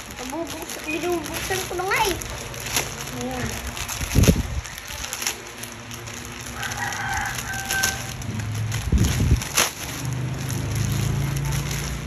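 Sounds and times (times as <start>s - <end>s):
plastic bag crinkling: 0.0s - 12.0s
rooster crowing: 6.5s - 8.3s.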